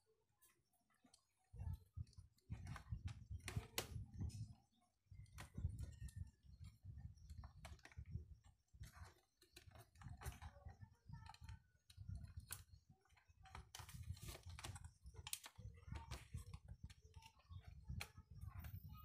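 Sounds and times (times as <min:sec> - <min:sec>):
plastic parts clicking and tapping: 0:01.0 - 0:04.6, 0:05.2 - 0:19.0.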